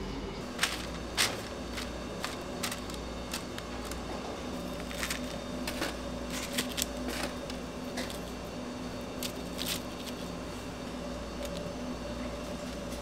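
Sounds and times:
low hum of kitchen equipment: 0:00.0 - 0:13.0
crisp rustles of fried food: 0:09.1 - 0:10.7.

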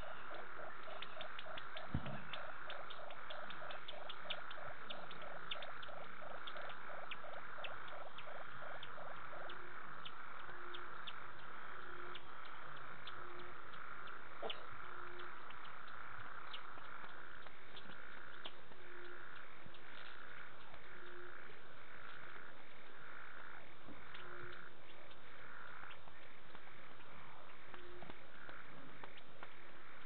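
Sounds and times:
scattered chirps and clicks: 0:00.0 - 0:23.0
fast pulsing frog call: 0:00.0 - 0:26.8
high insect hum: 0:00.0 - 0:30.0.

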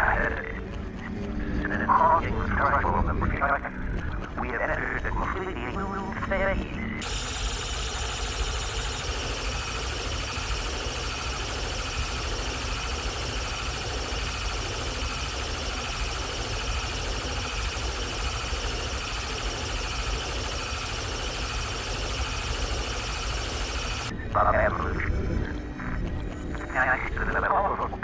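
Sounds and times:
held high-pitched tones: 0:07.0 - 0:24.1.

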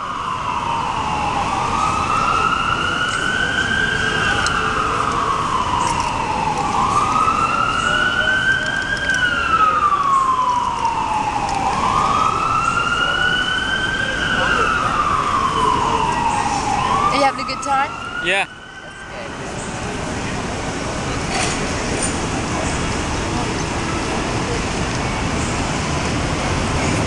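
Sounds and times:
wailing siren: 0:00.0 - 0:20.5
street noise: 0:00.0 - 0:27.0.

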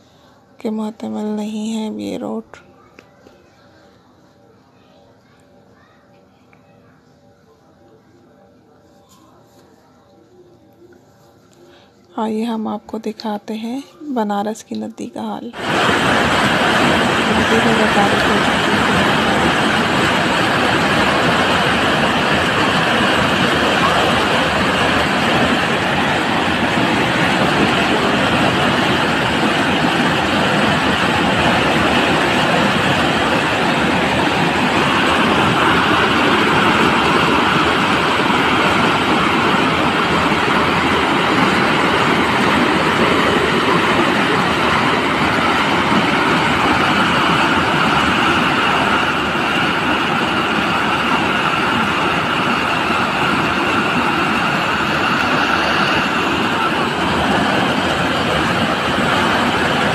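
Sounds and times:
floodwater rushing: 0:15.6 - 0:59.9.

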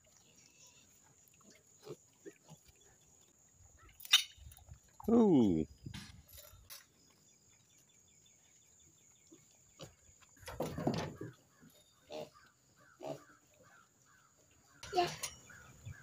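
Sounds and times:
pigs grunting: 0:00.0 - 0:03.1, 0:09.2 - 0:13.9
small birds chirping: 0:00.0 - 0:16.0
pig grunt: 0:12.0 - 0:12.4, 0:13.0 - 0:13.4.

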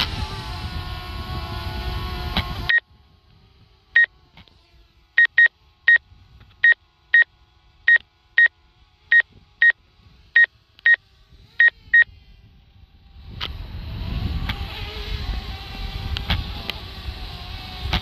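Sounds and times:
high electronic warning beeps: 0:05.2 - 0:06.0.

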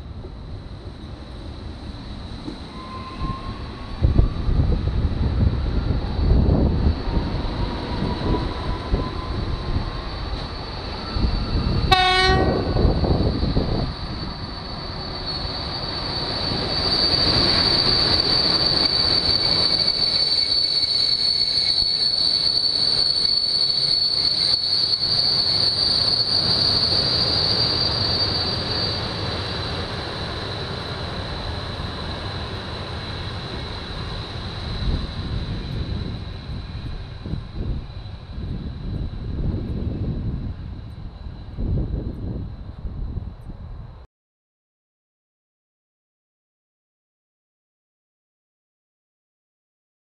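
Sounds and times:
train rolling past: 0:00.0 - 0:44.0
high-pitched wheel squeal: 0:02.2 - 0:41.3.

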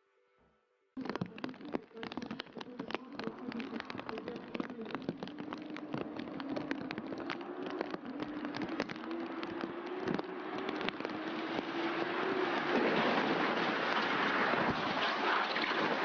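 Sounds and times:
heavy rain pattering: 0:01.0 - 0:16.0.

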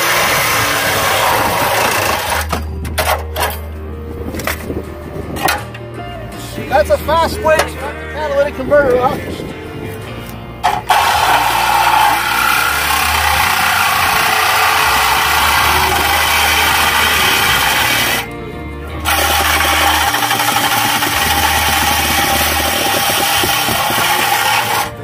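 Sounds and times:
reciprocating saw cutting metal pipe: 0:00.0 - 0:03.6, 0:10.6 - 0:18.3, 0:19.0 - 0:25.0
background music: 0:00.0 - 0:25.0.

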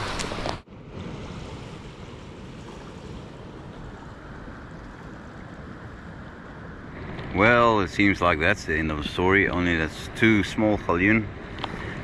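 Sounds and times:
ocean surf washing on shore: 0:00.0 - 0:12.0
wind rumbling on microphone: 0:00.0 - 0:12.0.

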